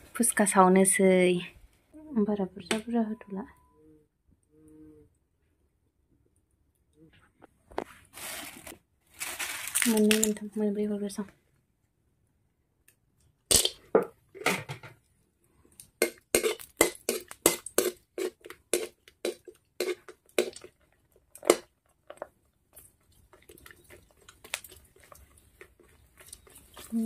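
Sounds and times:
dough frying in oil with pops: 15.7s - 25.5s.

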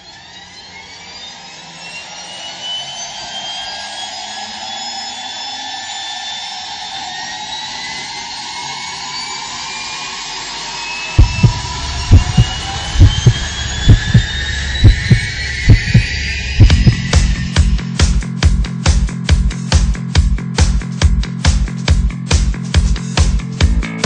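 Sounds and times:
heavy deep thump: 11.2s - 14.2s, 14.8s - 16.0s, 16.6s - 17.0s.

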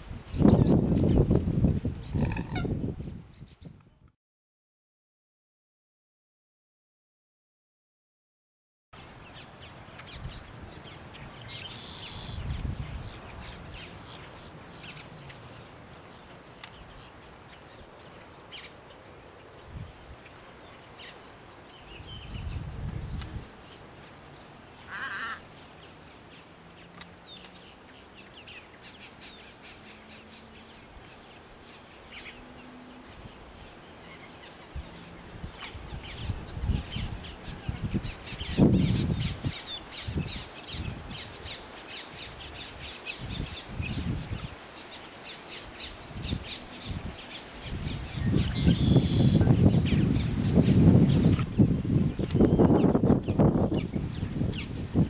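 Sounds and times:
wind buffeting microphone: 0.0s - 4.1s, 10.1s - 15.4s, 21.9s - 23.7s, 34.6s - 44.7s, 45.8s - 55.0s
harsh caw-like bird call: 24.9s - 25.4s
bird chirps: 34.0s - 51.4s.

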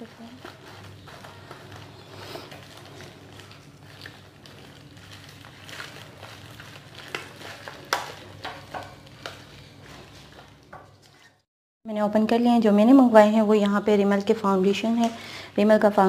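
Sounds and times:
scissors cutting bubble wrap: 0.0s - 11.3s.

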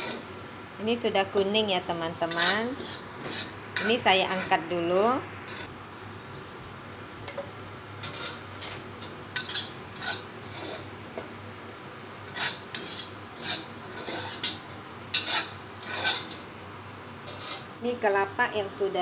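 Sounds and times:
metal spatula scraping a wok: 0.0s - 0.3s, 2.2s - 5.7s, 8.0s - 10.9s, 12.3s - 16.5s, 17.2s - 17.8s.

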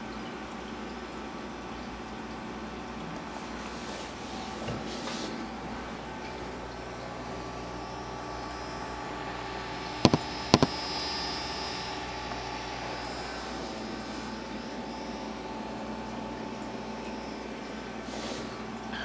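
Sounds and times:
aquarium equipment humming: 0.0s - 19.0s.

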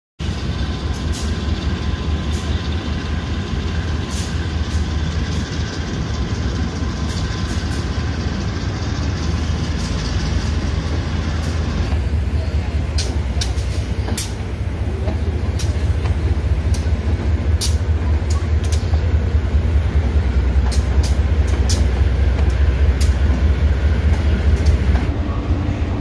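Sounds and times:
locomotive engines droning: 0.2s - 26.0s
wheels clicking on rails: 9.2s - 25.1s.

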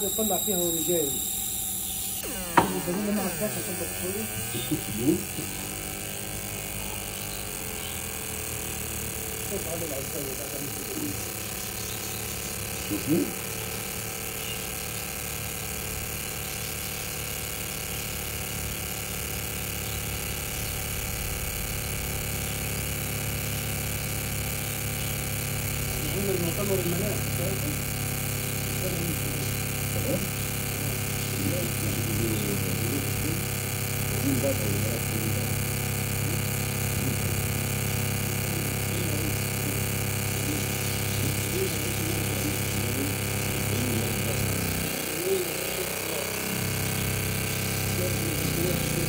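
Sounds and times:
faint held tones: 0.0s - 15.0s
fan noise: 0.0s - 49.0s
machine electric hum: 0.0s - 49.0s.

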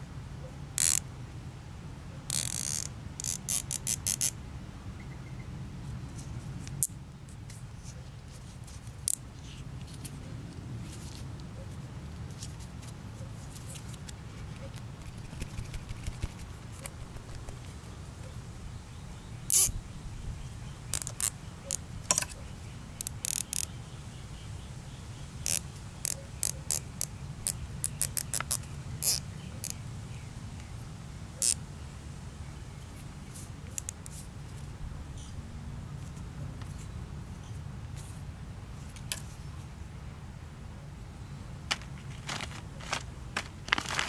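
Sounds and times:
zip tie ratchet clicking: 0.8s - 1.0s, 2.3s - 4.4s, 19.5s - 19.7s, 20.9s - 22.2s, 23.0s - 23.7s, 25.4s - 29.8s.

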